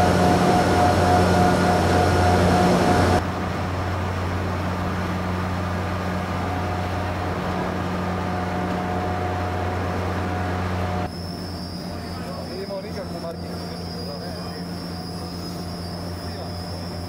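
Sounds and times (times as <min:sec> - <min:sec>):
heavy machinery hum: 0:00.0 - 0:17.0
faint high whine: 0:08.2 - 0:17.0.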